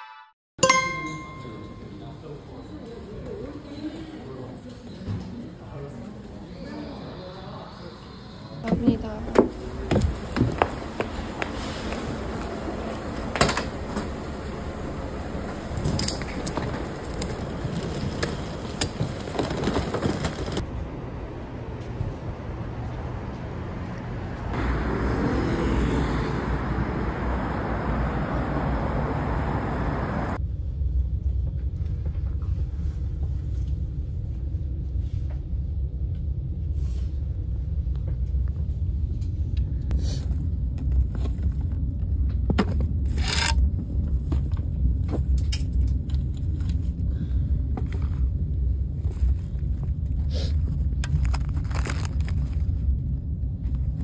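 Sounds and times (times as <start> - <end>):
moving vehicle rumble: 7.2 - 30.5, 35.5 - 54.0.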